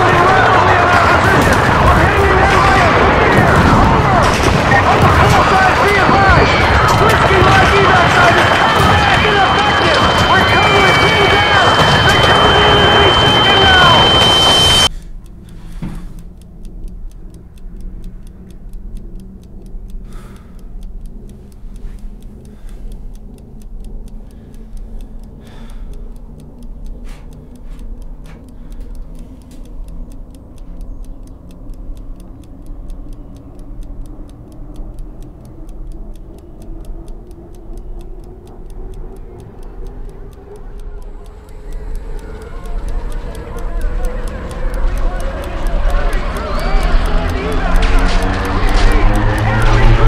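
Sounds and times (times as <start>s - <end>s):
clock ticking: 0.0s - 50.0s
low drone rising in pitch: 0.0s - 50.0s.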